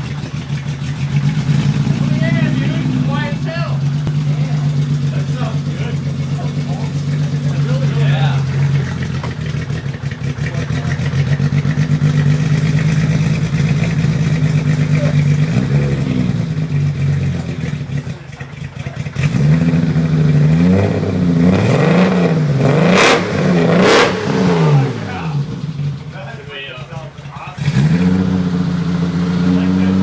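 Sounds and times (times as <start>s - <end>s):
car engine revving: 0.0s - 30.0s.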